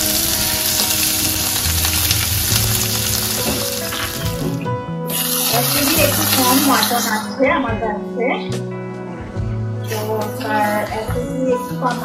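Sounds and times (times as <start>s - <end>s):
onions sizzling in oil: 0.0s - 4.5s, 5.1s - 7.1s.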